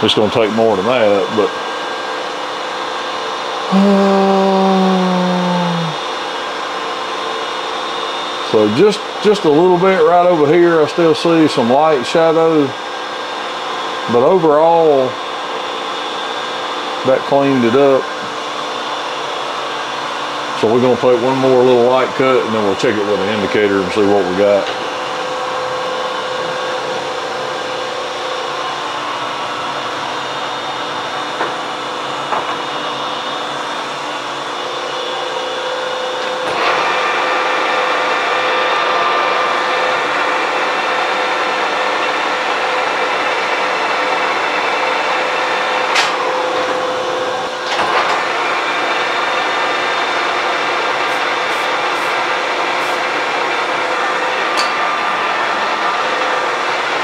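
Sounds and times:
lathe cutting metal: 51.0 - 57.0.

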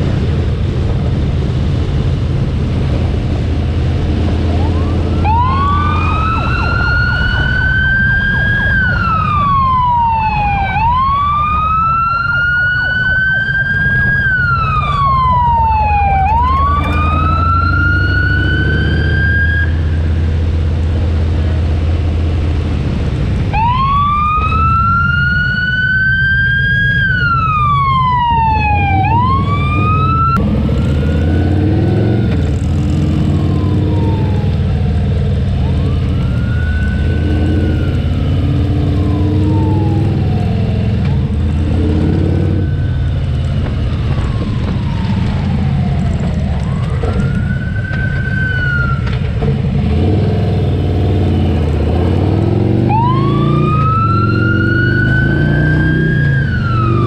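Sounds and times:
wailing emergency siren: 3.9 - 21.5, 23.4 - 57.0.

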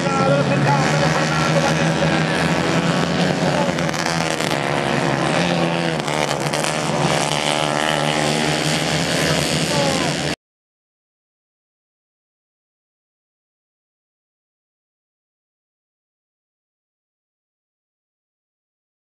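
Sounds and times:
racing kart engines passing: 0.0 - 10.4.

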